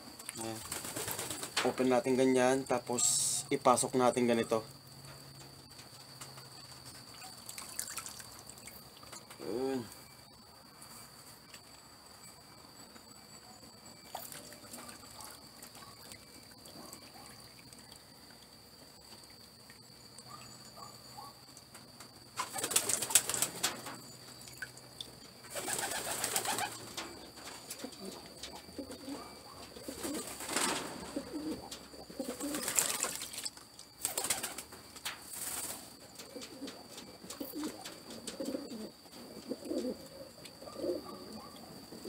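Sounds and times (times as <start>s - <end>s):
water splashing in a bucket: 7.1s - 9.2s, 32.3s - 34.3s
pigeons cooing: 22.4s - 24.0s, 25.5s - 33.1s, 36.0s - 42.0s.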